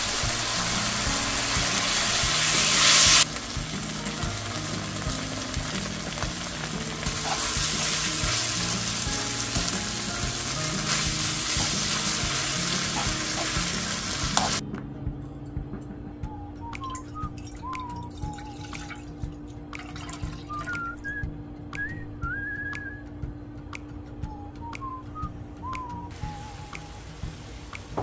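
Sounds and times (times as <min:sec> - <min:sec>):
food sizzling in a pan: 0:00.0 - 0:14.6, 0:26.2 - 0:28.0.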